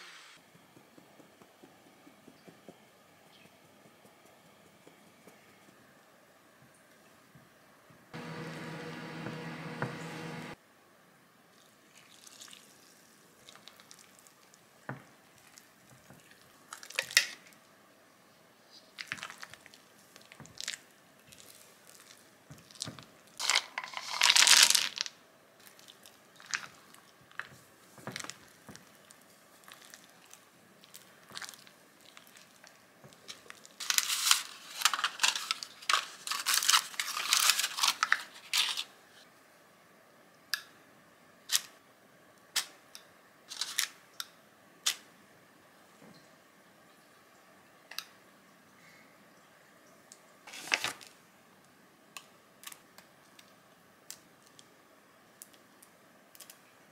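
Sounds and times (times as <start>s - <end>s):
crinkly rustling: 18.8s - 39.2s, 43.5s - 44.0s, 50.5s - 51.2s.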